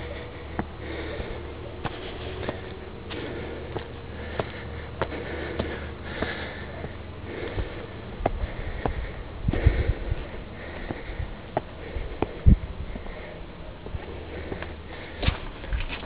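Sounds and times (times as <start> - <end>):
footsteps on stone steps: 0.0 - 16.0
low rumble: 0.0 - 16.0
person breathing hard through nose: 0.0 - 16.0.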